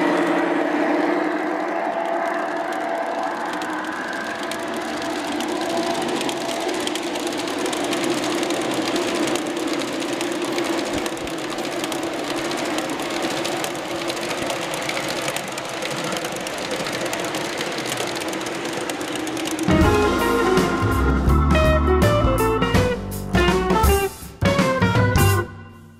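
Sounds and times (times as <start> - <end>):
model train wheels rattling on rails: 1.9 - 19.8.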